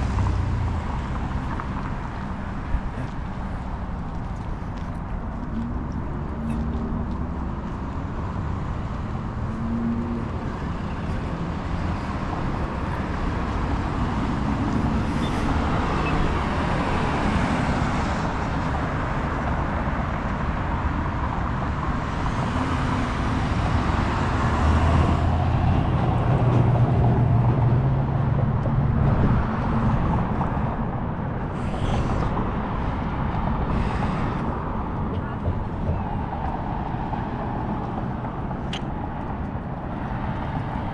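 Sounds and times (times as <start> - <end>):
road traffic: 0.0 - 40.9.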